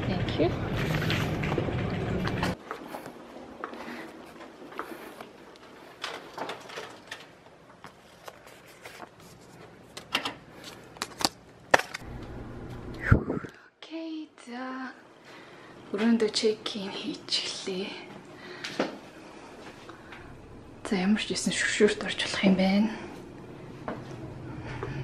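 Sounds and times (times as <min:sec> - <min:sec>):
low hum: 0:00.0 - 0:03.6, 0:11.9 - 0:13.8, 0:19.1 - 0:25.0
footsteps: 0:00.7 - 0:07.0.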